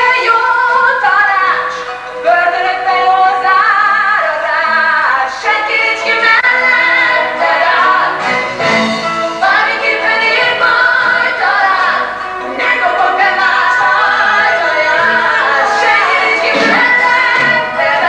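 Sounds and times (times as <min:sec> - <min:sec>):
woman singing a ballad: 0:00.0 - 0:08.0
instrumental accompaniment: 0:00.0 - 0:18.0.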